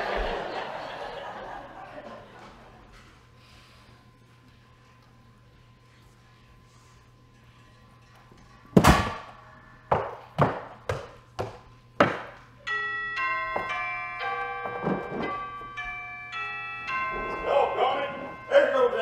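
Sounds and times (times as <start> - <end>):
doorbell chime: 12.6 - 19.0.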